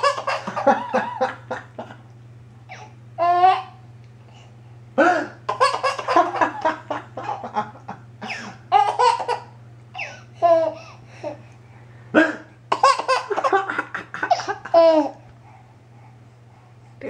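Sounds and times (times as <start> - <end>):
baby giggling: 0.0 - 1.3, 5.5 - 7.5, 8.3 - 10.8, 12.7 - 15.2
man laughing: 0.5 - 2.0, 13.3 - 15.0.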